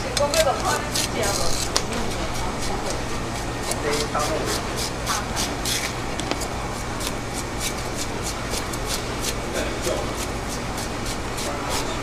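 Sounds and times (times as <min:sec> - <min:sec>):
steady low hum: 0:00.0 - 0:12.0
knife scraping fish skin: 0:00.3 - 0:12.0
faint background voices: 0:08.2 - 0:12.0.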